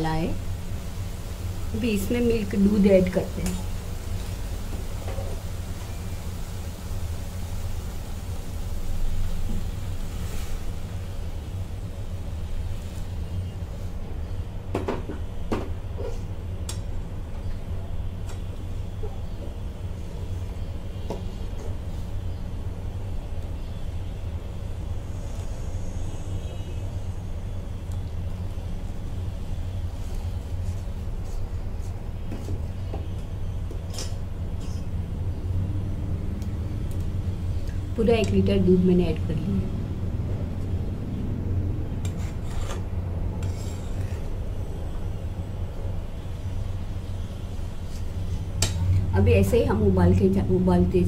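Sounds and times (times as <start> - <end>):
steady low hum: 0.0 - 51.0
metal spatula scraping pan: 42.0 - 42.8
spatula scraping a steel pan: 42.0 - 42.8, 43.4 - 44.3.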